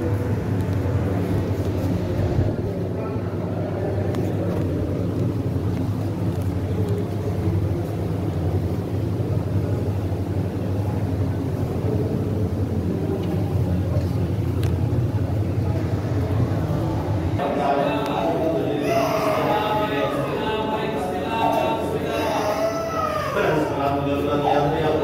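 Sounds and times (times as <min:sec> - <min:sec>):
low hum and rumble: 0:00.0 - 0:18.9.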